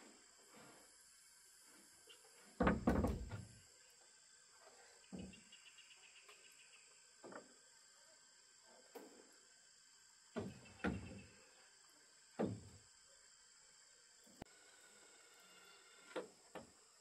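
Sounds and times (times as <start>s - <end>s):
high insect drone: 0.0s - 17.0s
wooden boards knocking and clattering: 2.6s - 3.4s.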